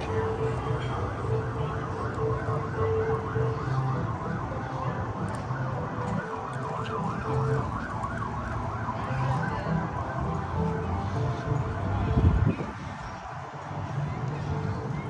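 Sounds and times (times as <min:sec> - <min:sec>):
siren yelping: 0:01.2 - 0:11.8.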